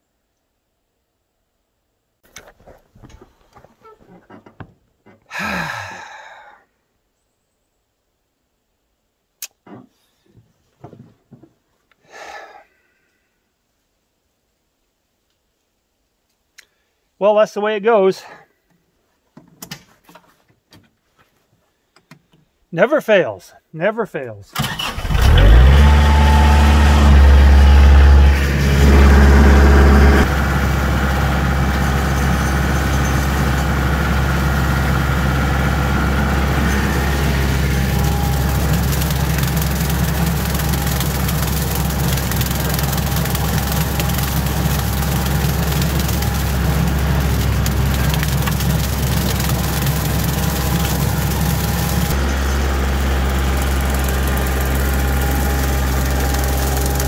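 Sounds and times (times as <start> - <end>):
rotary cutter mowing brush: 24.6 - 57.0
tractor diesel engine running: 24.6 - 57.0.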